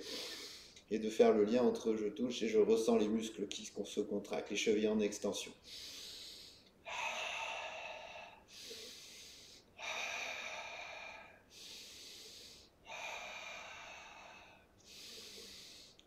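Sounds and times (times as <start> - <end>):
man breathing: 0.0 - 0.8, 5.6 - 16.0.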